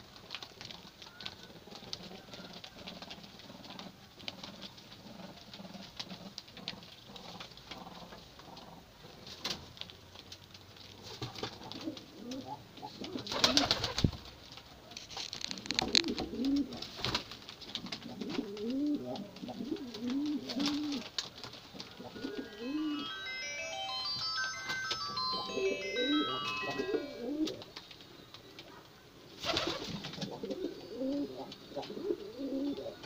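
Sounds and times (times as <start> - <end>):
birds scratching and clicking on floor: 0.0 - 22.5, 27.4 - 33.0
pigeons cooing: 11.2 - 14.1, 15.6 - 22.8, 28.5 - 33.0.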